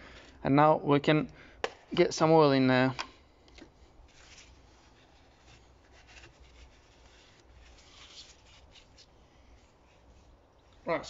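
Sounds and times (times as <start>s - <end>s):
cloth rag rubbing: 4.1s - 11.0s.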